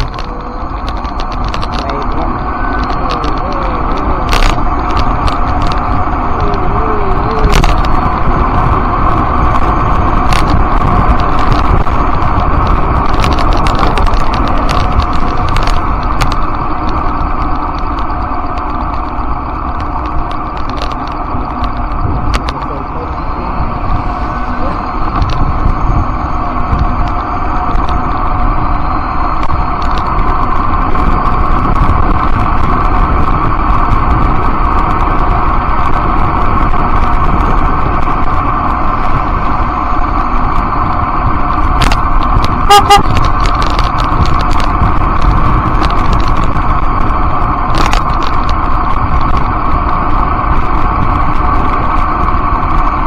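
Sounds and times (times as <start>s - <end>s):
road rumble: 0.0s - 53.0s
wind rushing: 0.0s - 53.0s
short two-note beep: 42.7s - 43.1s.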